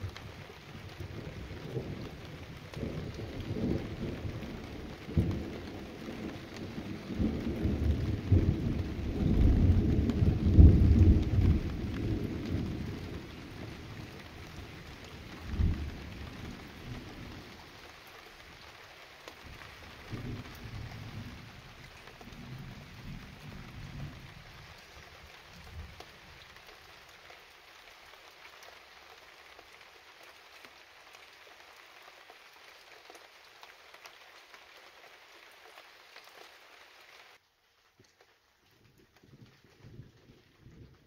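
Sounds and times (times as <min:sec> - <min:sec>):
thunder rumbling: 0:00.0 - 0:17.6
rain hissing: 0:00.0 - 0:40.8.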